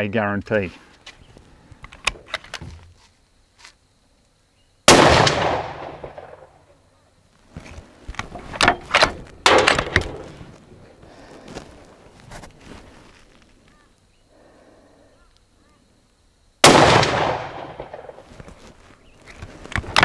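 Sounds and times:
rifle shot: 0:04.9 - 0:06.6, 0:09.4 - 0:10.3, 0:16.6 - 0:18.2.

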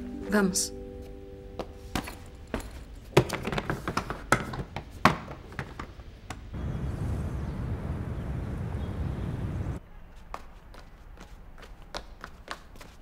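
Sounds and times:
suitcases knocking and clicking: 0:01.9 - 0:06.0.

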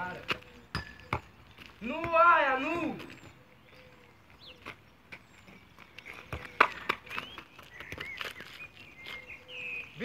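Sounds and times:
sneakers scuffing on asphalt: 0:00.0 - 0:10.0
football taps on asphalt: 0:00.2 - 0:03.1, 0:06.1 - 0:08.4.

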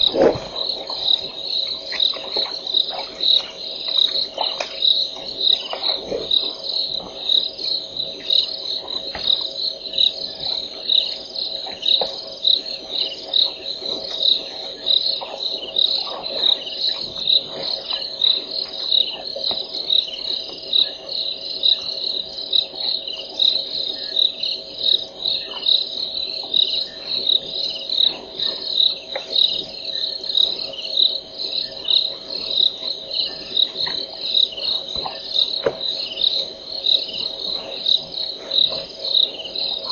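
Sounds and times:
insects chirping: 0:00.0 - 0:39.9.

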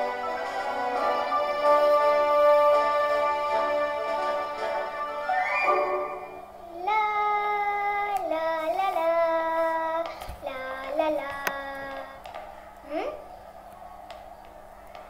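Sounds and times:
girl singing simple tune: 0:06.4 - 0:13.2.

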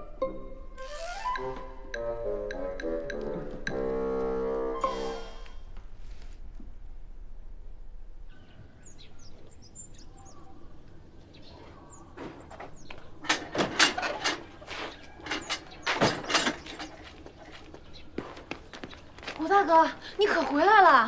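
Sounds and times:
birds chirping: 0:08.2 - 0:20.8
hurried footsteps: 0:14.3 - 0:20.8.

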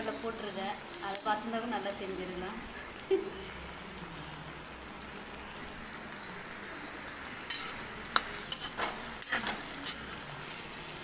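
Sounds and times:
vegetables sizzling in oil: 0:00.0 - 0:11.0
ladle scraping a pan: 0:07.5 - 0:10.2.

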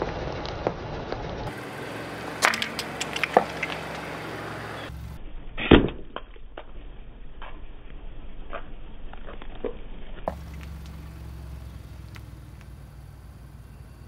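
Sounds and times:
tyre crushing things on asphalt: 0:01.5 - 0:04.9, 0:10.3 - 0:12.8.

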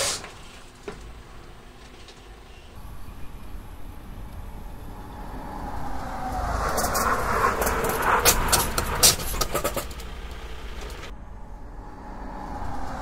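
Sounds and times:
truck braking hard: 0:00.0 - 0:13.0
falling tone: 0:03.0 - 0:09.9.

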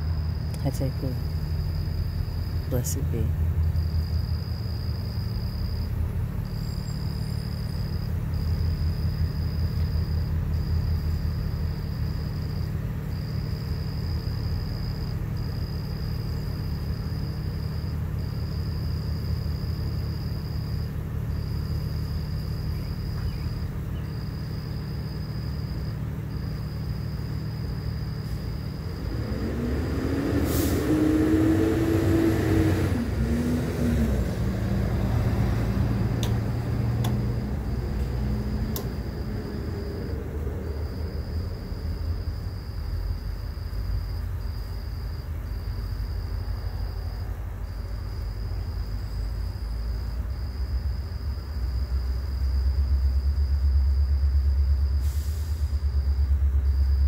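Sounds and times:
vehicle engine passing: 0:00.0 - 0:44.2
low rumble of motor traffic: 0:00.0 - 0:57.0.

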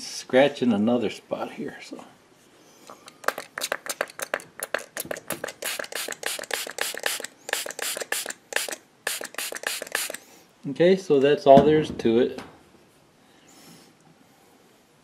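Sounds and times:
spray bottle spritzing: 0:03.0 - 0:10.2.

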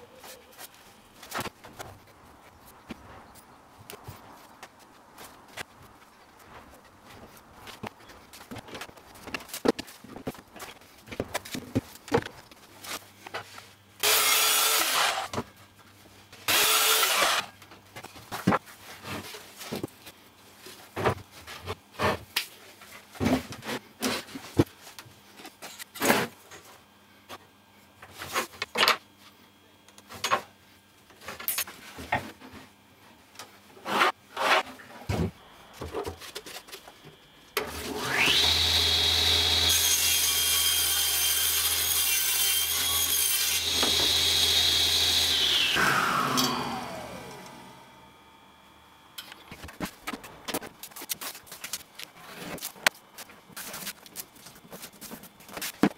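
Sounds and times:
table saw motor running: 0:14.0 - 0:15.3, 0:16.5 - 0:17.5, 0:38.0 - 0:40.0, 0:43.6 - 0:48.0
power saw burst: 0:43.8 - 0:47.9.

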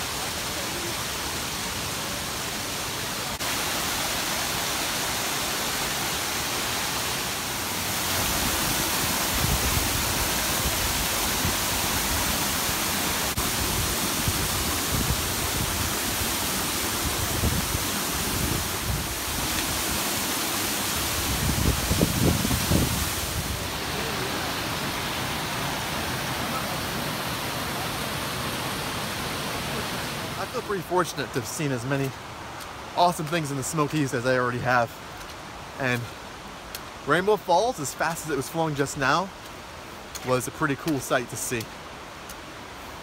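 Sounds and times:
waterfall rushing: 0:00.0 - 0:43.0.

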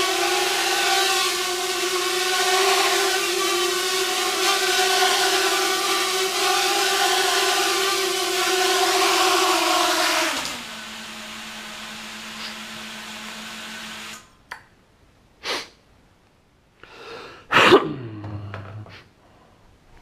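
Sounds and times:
drone motors humming: 0:00.0 - 0:14.2.

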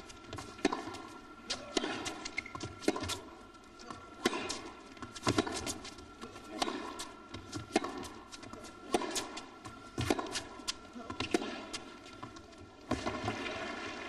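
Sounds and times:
racquet striking ball: 0:00.2 - 0:03.3, 0:04.1 - 0:05.8, 0:06.5 - 0:10.6
ball bouncing on court: 0:00.3 - 0:13.6.

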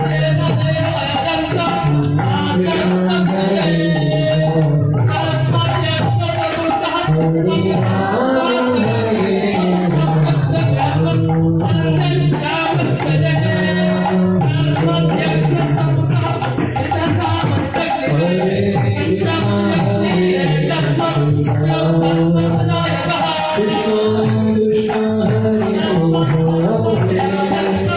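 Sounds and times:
jingling percussion and drum: 0:00.0 - 0:27.9.

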